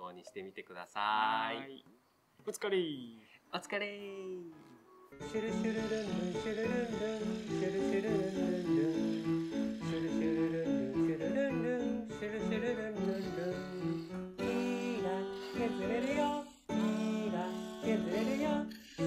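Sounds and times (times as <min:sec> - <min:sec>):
person singing: 0:04.1 - 0:19.0.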